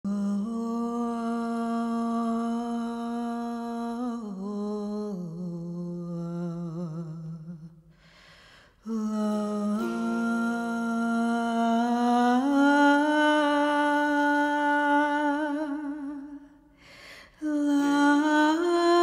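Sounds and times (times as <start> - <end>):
woman humming: 8.8 - 16.6, 17.4 - 19.0.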